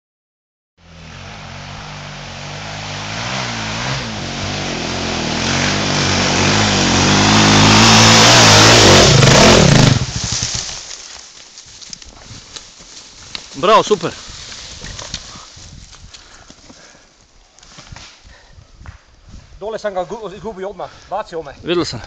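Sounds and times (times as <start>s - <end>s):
dirt bike engine revving: 0.8s - 10.8s.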